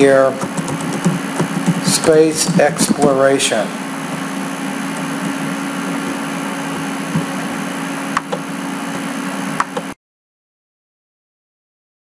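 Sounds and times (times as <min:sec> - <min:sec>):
machine hum and hiss: 0:00.0 - 0:10.0
sharp clicks: 0:00.4 - 0:01.8.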